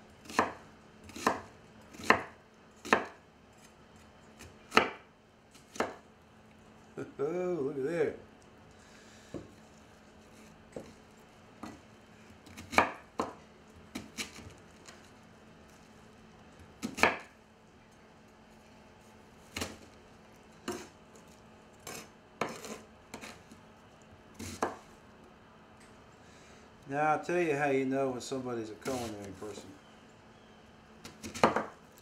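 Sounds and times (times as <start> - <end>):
knife chopping on wooden board: 0.2 - 3.2, 4.4 - 6.0, 12.4 - 14.6, 16.8 - 17.4, 21.8 - 23.4, 24.4 - 24.9, 31.0 - 31.8.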